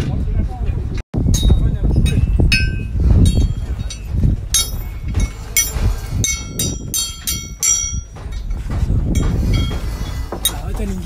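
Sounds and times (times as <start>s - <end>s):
metal striking scaffolding tube: 1.2s - 11.0s.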